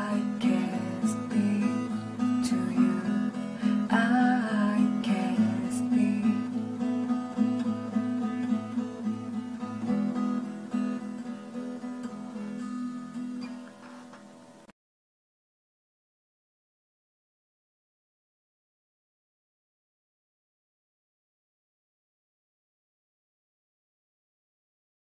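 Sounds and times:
strummed acoustic guitar song: 0.0 - 14.7.

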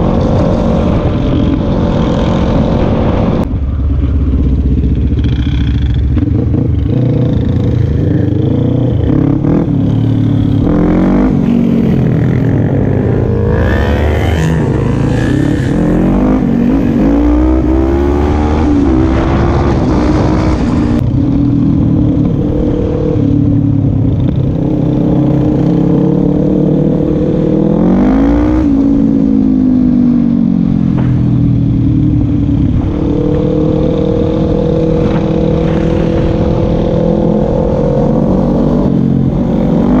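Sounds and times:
quad bike engine revving: 5.2 - 21.0.

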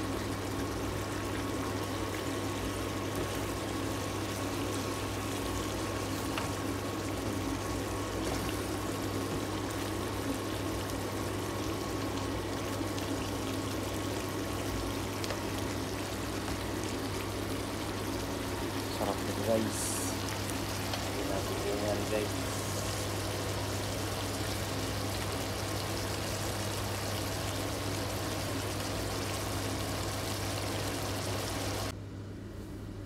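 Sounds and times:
food sizzling in a frying pan: 0.0 - 31.9
steady low hum: 0.0 - 33.0.

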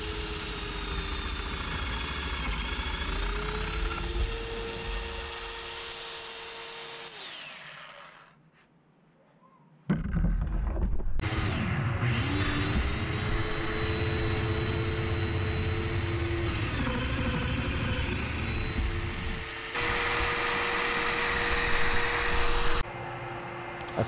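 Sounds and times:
power tool motor whining: 0.0 - 8.4, 11.2 - 22.8
dust extractor running: 11.2 - 22.8.

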